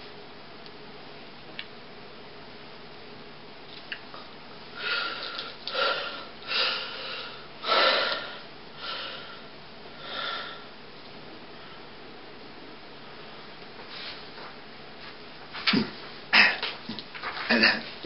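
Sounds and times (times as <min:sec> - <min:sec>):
person breathing noisily: 0:04.7 - 0:10.7.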